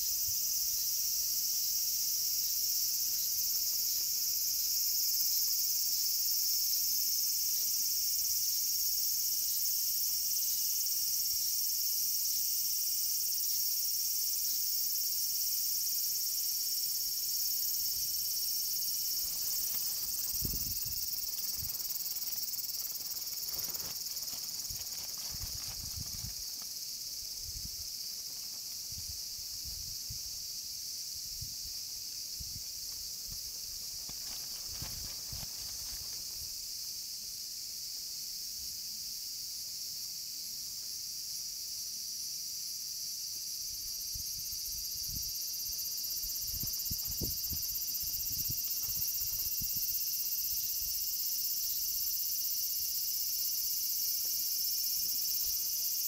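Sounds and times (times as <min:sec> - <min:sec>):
high-pitched insect chorus: 0:00.0 - 0:56.0
rustling: 0:19.0 - 0:26.8, 0:33.8 - 0:36.4.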